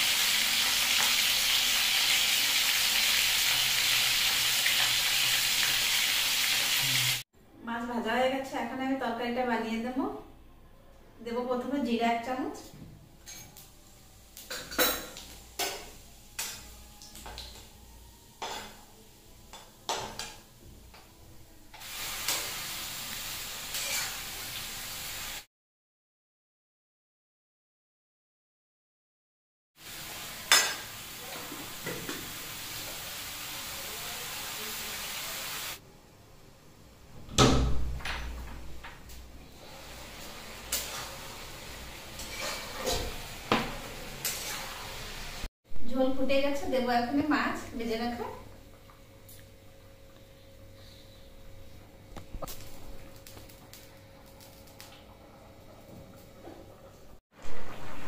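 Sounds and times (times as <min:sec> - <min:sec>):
vegetables sizzling in oil: 0:00.0 - 0:07.2, 0:13.6 - 0:21.0, 0:21.8 - 0:25.5, 0:29.8 - 0:35.8, 0:39.5 - 0:45.5
metal spatula scraping a pan: 0:23.7 - 0:24.3, 0:40.2 - 0:41.2, 0:42.1 - 0:43.2, 0:44.2 - 0:45.0.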